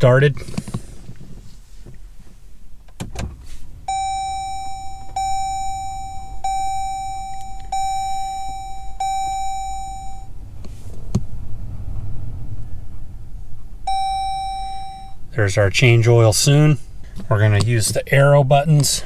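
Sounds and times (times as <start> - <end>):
car warning chime: 3.8 - 10.4, 13.9 - 15.4.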